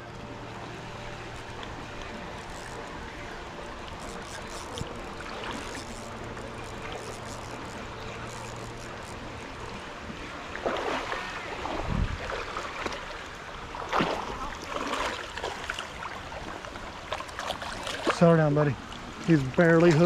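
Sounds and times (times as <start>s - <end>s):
creek water running: 0.0s - 20.0s
fish splashing: 1.4s - 9.9s.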